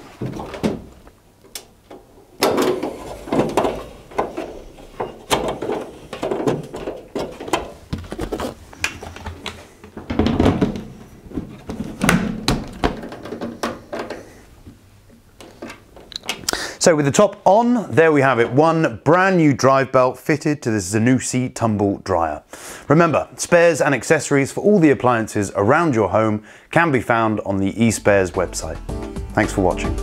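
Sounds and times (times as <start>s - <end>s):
sheet metal panels knocking and scraping: 1.9s - 14.4s.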